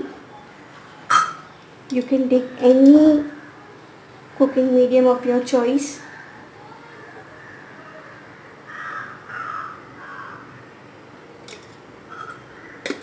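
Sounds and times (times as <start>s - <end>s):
crow cawing: 6.0s - 10.7s, 12.1s - 13.0s.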